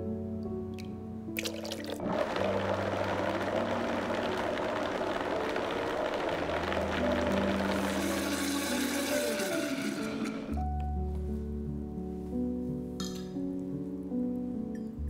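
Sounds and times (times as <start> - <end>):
high-speed blender running: 2.0 - 10.6.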